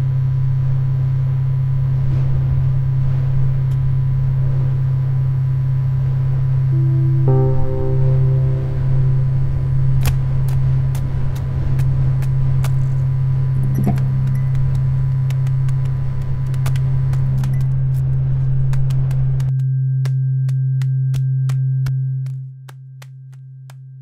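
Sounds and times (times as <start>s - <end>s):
loud low drone: 6.6s - 14.9s
faint clicks and crackles: 13.6s - 19.5s.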